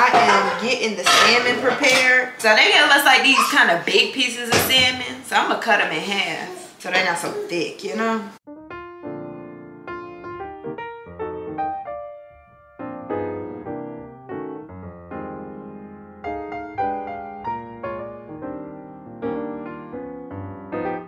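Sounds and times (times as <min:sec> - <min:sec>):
soft piano music: 0:08.5 - 0:21.0.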